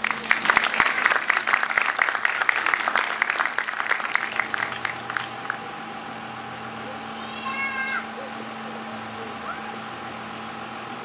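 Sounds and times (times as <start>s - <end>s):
audience clapping: 0.0s - 5.9s
steady hum: 0.0s - 11.0s.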